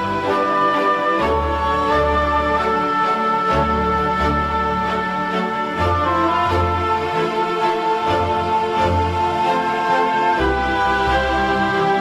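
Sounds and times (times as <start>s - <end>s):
sustained instrumental chords: 0.0s - 12.0s.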